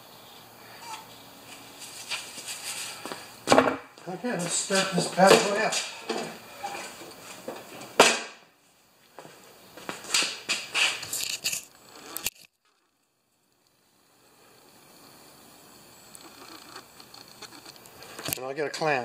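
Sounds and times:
short rasps and clicks: 0:10.8 - 0:13.8, 0:16.0 - 0:18.4.

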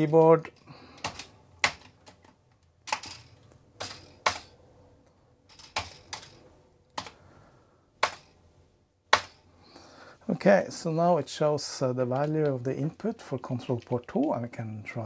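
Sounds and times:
computer keys clacking: 0:05.5 - 0:07.2.

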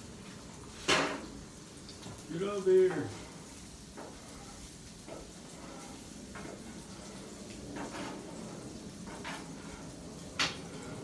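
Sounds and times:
frying hiss: 0:00.0 - 0:11.0
metal spatula scraping griddle: 0:02.8 - 0:11.0.

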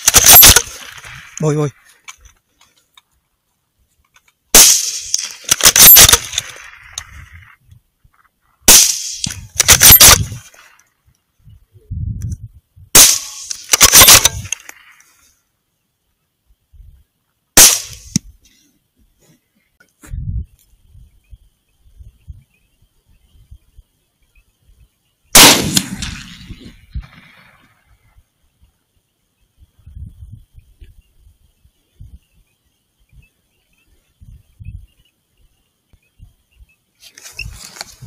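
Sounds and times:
rifle gunshots: 0:00.0 - 0:01.6, 0:04.5 - 0:07.3, 0:08.7 - 0:10.7, 0:13.0 - 0:14.9, 0:17.6 - 0:18.2, 0:25.3 - 0:27.7
sharp cracks: 0:00.0 - 0:02.7, 0:04.2 - 0:07.6, 0:08.6 - 0:11.0, 0:12.9 - 0:15.3, 0:17.6 - 0:18.3, 0:25.3 - 0:27.9.

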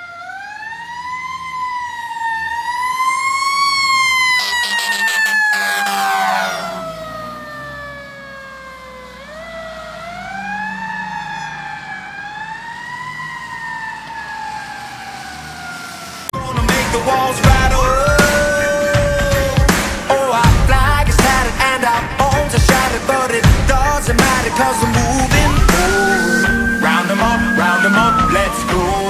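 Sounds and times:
ambulance siren wailing: 0:00.0 - 0:29.0
harsh horn: 0:04.2 - 0:07.4.

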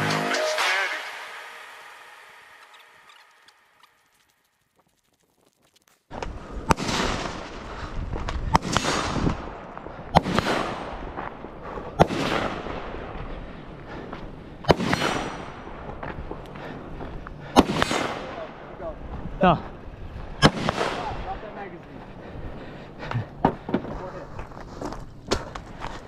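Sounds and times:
gunshots with rolling echo: 0:06.6 - 0:07.8, 0:08.5 - 0:13.9, 0:14.5 - 0:19.1, 0:20.4 - 0:21.9.

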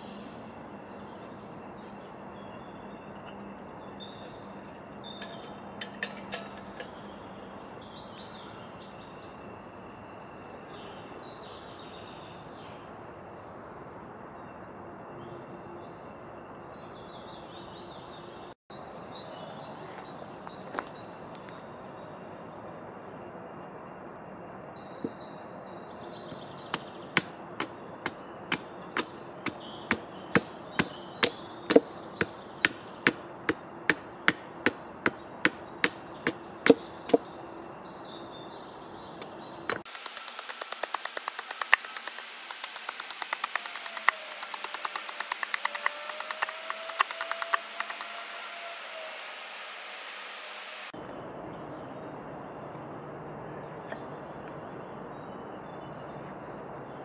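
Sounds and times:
birds chirping: 0:00.0 - 0:57.0
wood striking wood: 0:26.8 - 0:37.2, 0:39.7 - 0:48.1.

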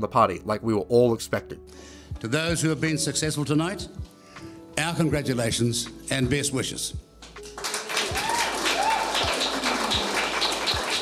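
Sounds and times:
crowd clapping: 0:07.2 - 0:11.0
audience shouts: 0:08.1 - 0:10.2.

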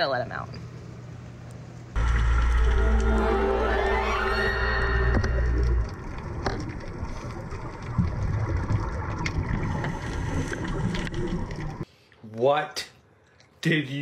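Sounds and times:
underwater rumble and hiss: 0:02.0 - 0:04.0, 0:04.8 - 0:11.8.

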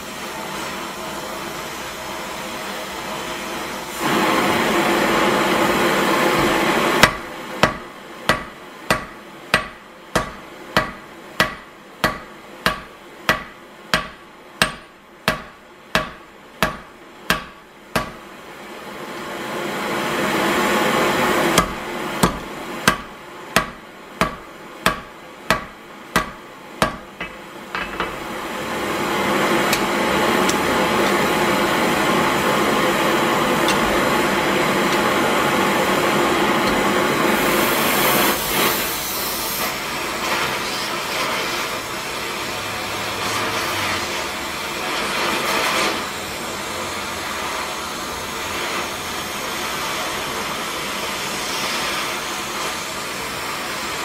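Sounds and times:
gas torch hissing: 0:00.0 - 0:08.9, 0:18.1 - 0:54.0
hammer blows on anvil: 0:06.4 - 0:18.2, 0:21.6 - 0:28.2.

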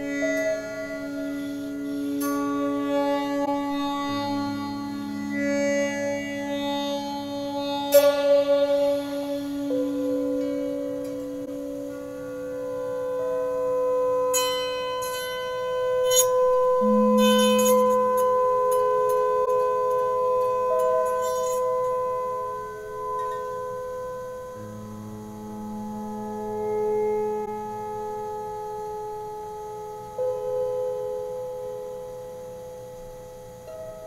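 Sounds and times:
electric autoharp ringing notes: 0:00.0 - 0:34.0
quick struck autoharp notes: 0:14.4 - 0:22.2.

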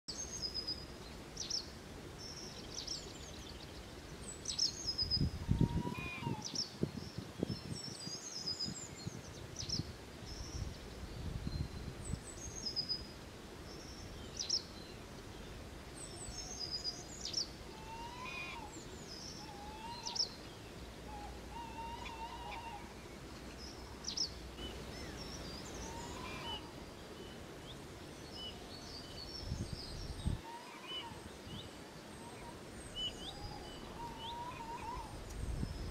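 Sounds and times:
songbirds chirping: 0:00.1 - 0:35.9
distant owl hooting: 0:05.4 - 0:06.5, 0:17.7 - 0:18.8, 0:19.4 - 0:20.3, 0:21.0 - 0:23.0, 0:25.7 - 0:26.8, 0:32.2 - 0:35.4
owl hooting: 0:05.4 - 0:06.5, 0:17.7 - 0:18.8, 0:19.4 - 0:20.3, 0:21.0 - 0:23.0, 0:25.8 - 0:26.8, 0:30.4 - 0:31.2, 0:32.2 - 0:35.3.

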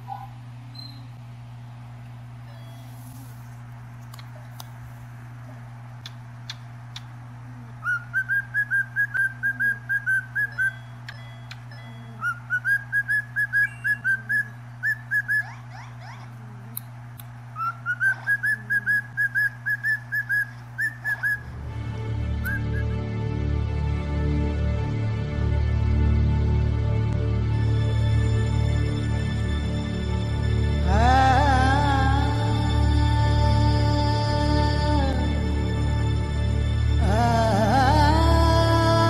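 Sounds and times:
steady low hum: 0:00.0 - 0:39.0
cockatiel whistling: 0:02.5 - 0:03.0, 0:07.8 - 0:16.2, 0:17.6 - 0:21.5, 0:22.4 - 0:22.9
background music: 0:21.5 - 0:39.0.

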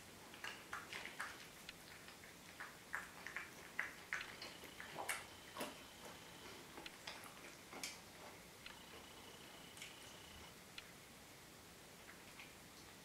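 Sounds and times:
cat eating from metal bowl: 0:00.1 - 0:10.4.

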